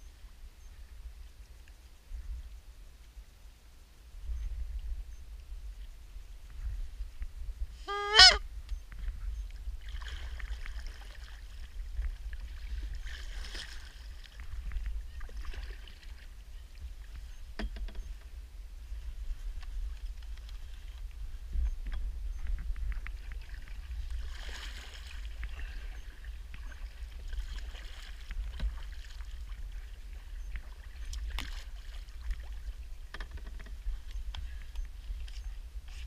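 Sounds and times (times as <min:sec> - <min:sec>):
wind rumble on microphone: 0:00.0 - 0:36.0
paddle strokes splashing: 0:09.8 - 0:17.3, 0:22.9 - 0:36.0.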